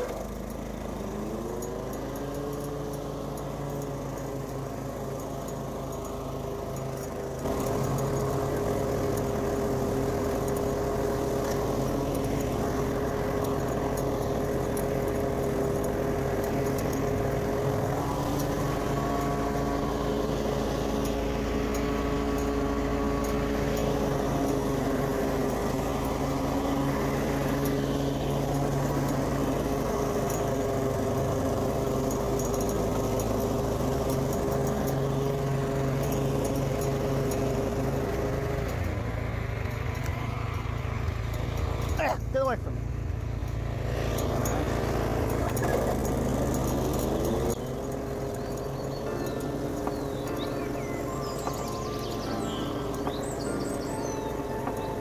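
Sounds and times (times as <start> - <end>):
lawn mower engine cutting grass: 0.0 - 55.0.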